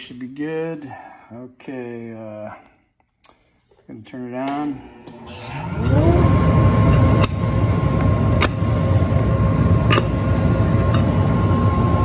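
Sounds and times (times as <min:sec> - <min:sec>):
dust collector motor humming: 0:05.1 - 0:12.0.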